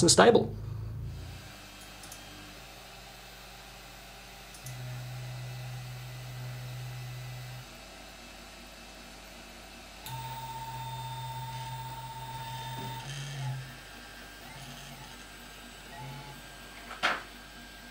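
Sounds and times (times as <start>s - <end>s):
printer hum: 0.5s - 17.9s
stepper motors whirring: 10.1s - 13.8s.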